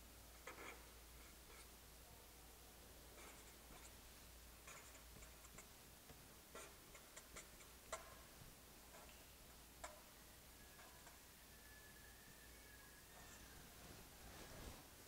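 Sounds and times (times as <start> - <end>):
marker scratching on paper: 3.2 - 4.0, 4.6 - 5.7, 6.5 - 8.2.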